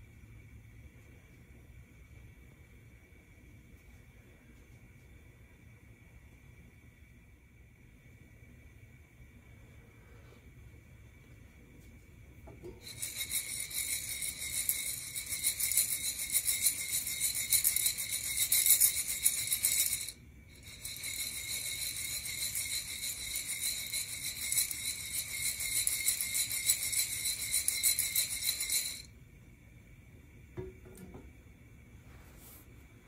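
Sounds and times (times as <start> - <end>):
coffee beans rattling in roaster: 12.5 - 29.1.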